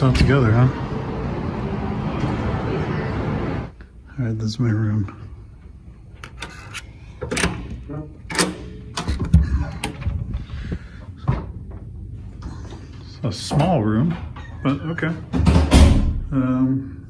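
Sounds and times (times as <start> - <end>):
door latch clicks and knocks: 8.3 - 9.3.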